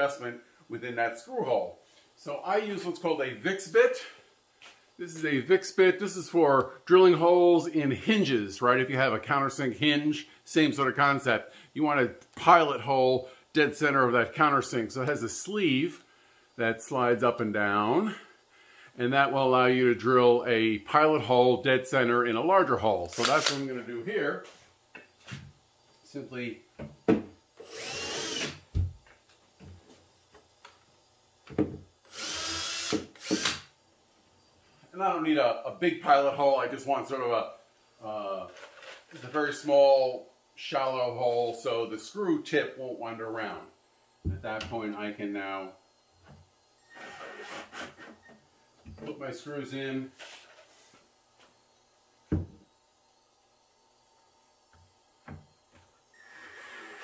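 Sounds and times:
power drill spinning: 23.1 - 23.8, 27.6 - 28.7, 32.0 - 33.7, 46.8 - 48.4, 56.1 - 57.0.

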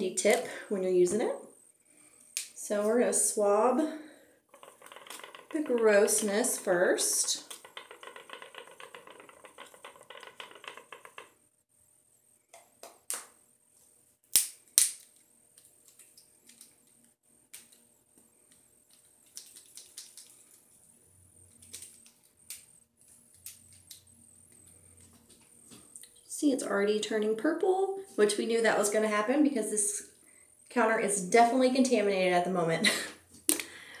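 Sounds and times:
plastic clicks and snaps: 14.3 - 17.8.

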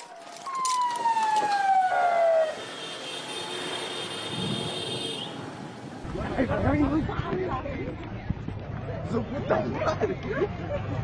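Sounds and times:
emergency siren: 0.0 - 3.7.

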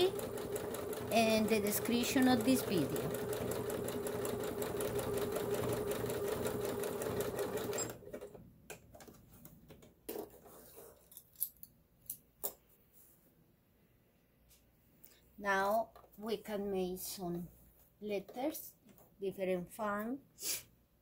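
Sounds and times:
sewing machine running: 0.0 - 8.4.

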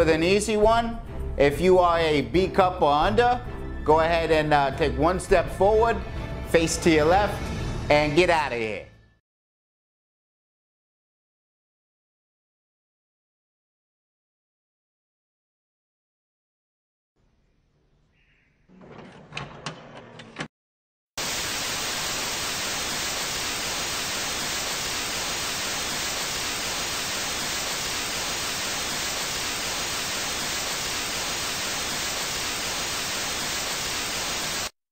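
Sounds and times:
clicks and clunks: 18.8 - 20.5
tv static hiss: 21.2 - 34.8.

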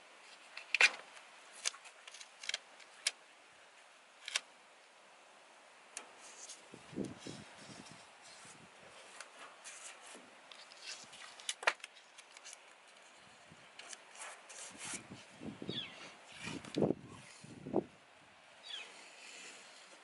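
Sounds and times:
tape rasping and rubbing: 6.2 - 13.2, 13.8 - 15.3, 16.0 - 17.6.

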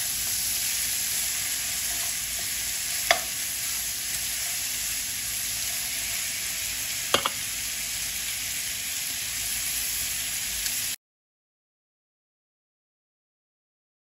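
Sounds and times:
meat sizzling in a frying pan: 0.0 - 11.0.

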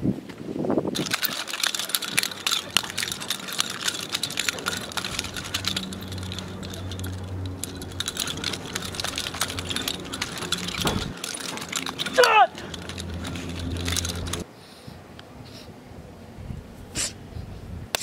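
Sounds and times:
knives clicking and rattling: 0.9 - 14.4.

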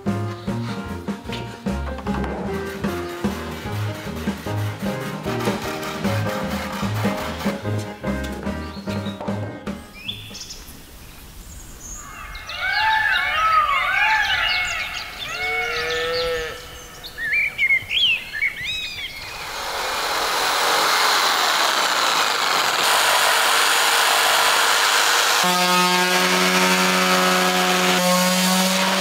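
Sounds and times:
birds calling: 7.9 - 19.9
electric jigsaw cutting wood: 19.2 - 29.0.

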